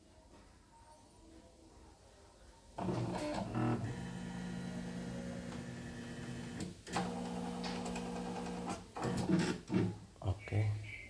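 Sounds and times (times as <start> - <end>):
embroidery machine motor hum: 2.8 - 9.3.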